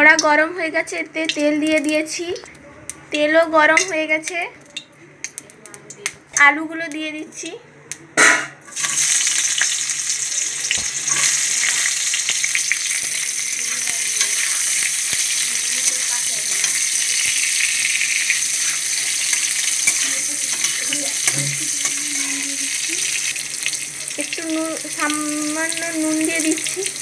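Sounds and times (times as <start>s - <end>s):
food splashing into hot oil: 8.7s - 27.0s
potatoes sizzling in oil: 8.7s - 27.0s
steel spatula scraping: 14.2s - 23.7s.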